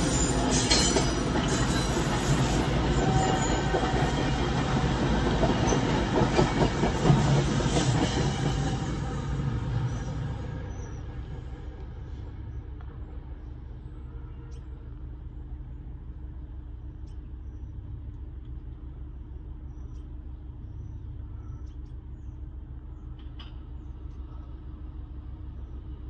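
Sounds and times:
car idling from inside: 11.6s - 26.0s.

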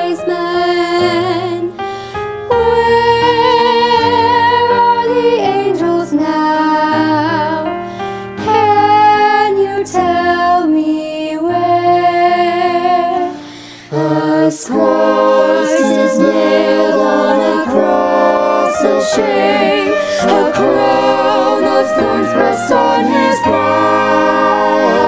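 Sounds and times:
voices singing unaccompanied: 13.9s - 25.0s.

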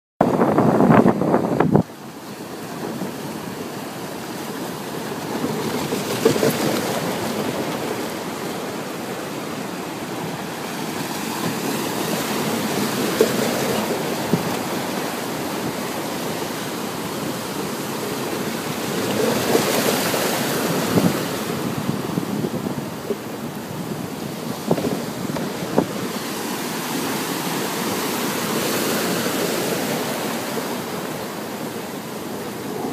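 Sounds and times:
wind on microphone: 0.2s - 2.0s, 11.3s - 32.9s
sea waves washing over pontoon: 0.2s - 32.9s.

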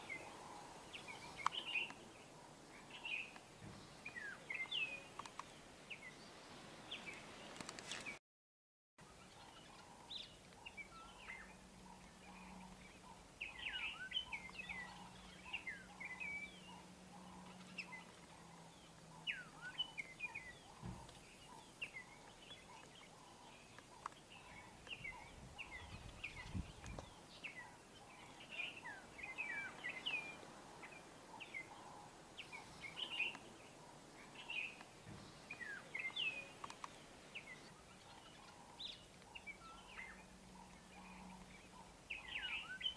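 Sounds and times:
small birds chirping: 0.0s - 8.2s, 9.0s - 42.9s
faint low hum: 9.0s - 42.9s.

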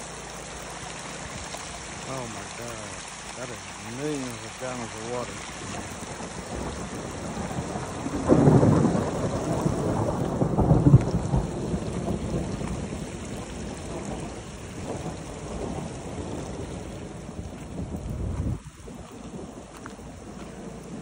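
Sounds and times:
heavy rain falling: 0.0s - 21.0s
thunder rumble: 2.0s - 21.0s.

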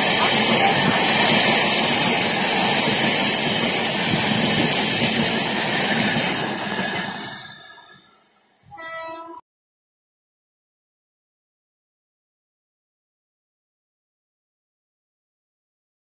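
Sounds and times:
train wheels rumbling on rails: 0.0s - 8.3s
brief tone: 7.6s - 9.4s.

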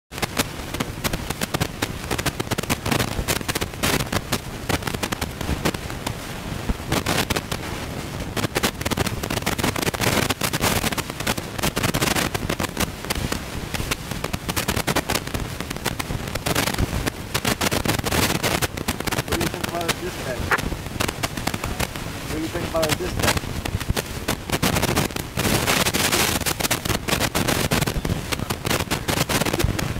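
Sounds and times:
crackling and rattling in cab: 8.3s - 29.9s.

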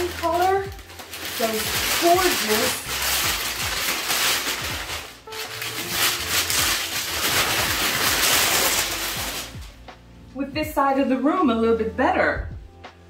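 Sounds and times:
packing paper rustling and crinkling: 0.0s - 9.8s.

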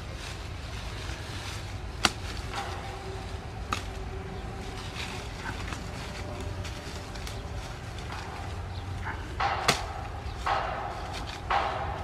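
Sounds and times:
leaves rustling: 0.0s - 12.0s
steady low rumble: 0.0s - 12.0s
knife chopping wood: 9.6s - 10.1s.

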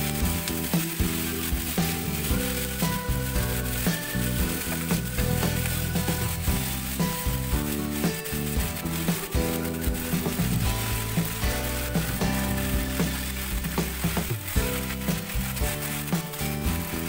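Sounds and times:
background music: 0.0s - 17.0s
food sizzling in frying pan: 0.0s - 17.0s
spatula scraping pan: 0.0s - 17.0s.

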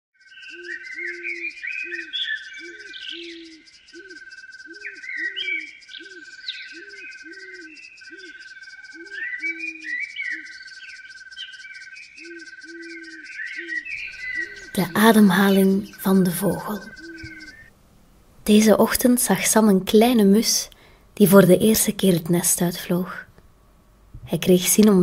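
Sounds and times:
pulsing insect trill: 0.2s - 17.7s
birds chirping: 0.3s - 23.4s, 24.2s - 25.0s.

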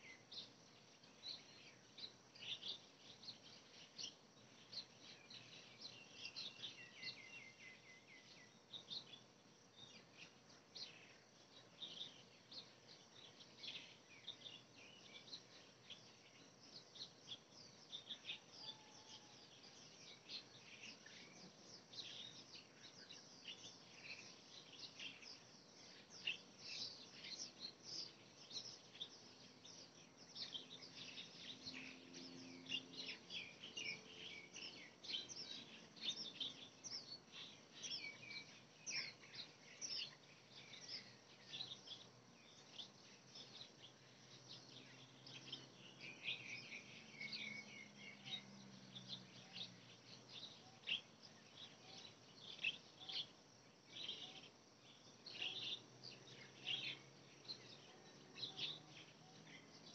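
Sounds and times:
faint low hum: 0.0s - 59.9s
small birds chirping: 0.0s - 59.9s.

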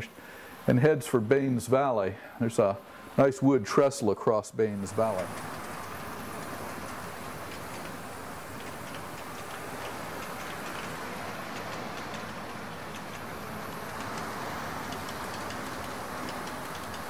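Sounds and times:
model train rolling rumble: 4.7s - 17.0s
quick clicks of wheels: 4.9s - 17.0s.

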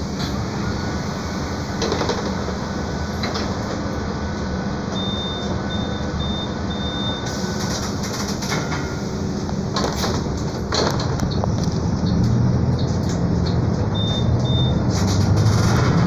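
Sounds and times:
bus engine idling: 0.0s - 15.7s
high electronic beeps: 13.9s - 14.8s.

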